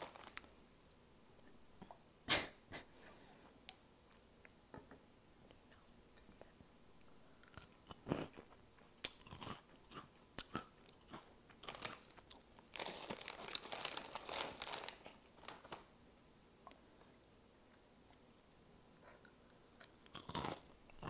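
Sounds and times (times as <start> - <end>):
snack crunching and chewing: 7.4 - 15.7, 19.2 - 21.0.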